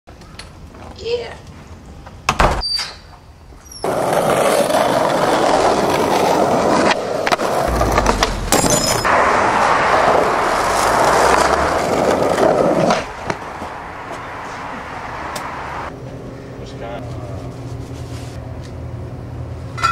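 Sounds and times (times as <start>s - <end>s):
skateboard wheels rolling on asphalt: 3.5s - 15.9s.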